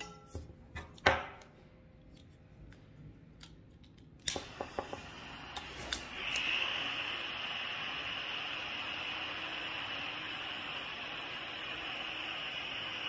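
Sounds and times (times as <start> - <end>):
torch igniter clicking: 3.4 - 13.0
torch flame hissing: 4.3 - 13.0.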